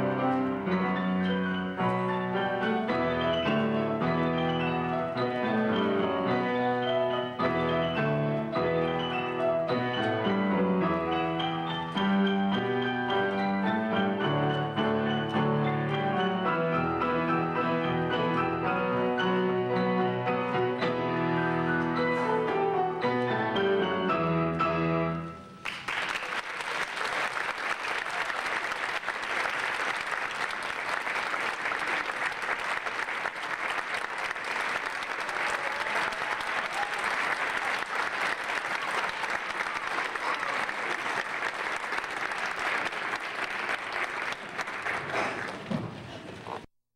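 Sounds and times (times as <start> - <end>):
piano playing: 0.0 - 25.8
audience applause: 25.6 - 46.3.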